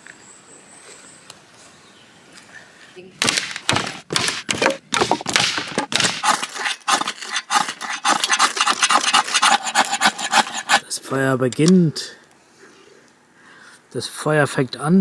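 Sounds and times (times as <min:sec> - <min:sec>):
dry sticks snapping: 0:03.2 - 0:08.7
scraping strokes at fire pit: 0:03.9 - 0:11.0.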